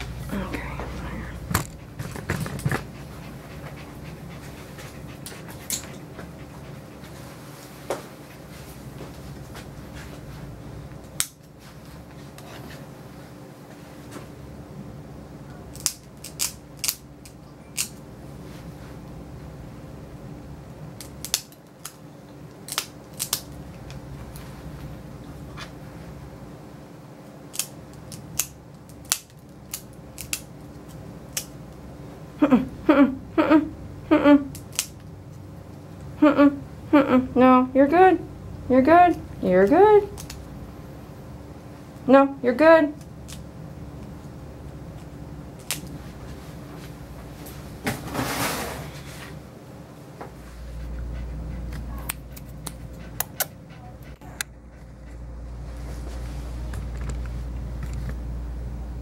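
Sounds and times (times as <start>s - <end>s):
low room hum: 0.0s - 59.0s
dog nail clippers clicking: 15.7s - 18.0s.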